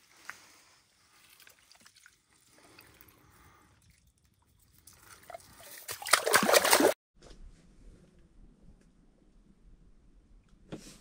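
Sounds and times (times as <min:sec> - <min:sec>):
water dripping and splashing: 0:01.0 - 0:07.0.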